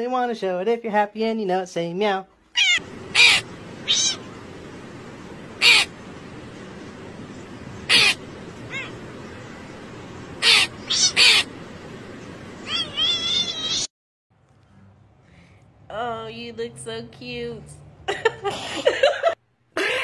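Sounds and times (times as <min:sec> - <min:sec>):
crow cawing: 0:02.6 - 0:04.3, 0:05.6 - 0:06.0, 0:07.9 - 0:09.1, 0:10.4 - 0:11.6
wavering high bird call: 0:02.6 - 0:04.4, 0:05.6 - 0:06.0, 0:07.8 - 0:09.6, 0:10.3 - 0:11.6, 0:12.6 - 0:13.9
background hiss: 0:02.8 - 0:13.8.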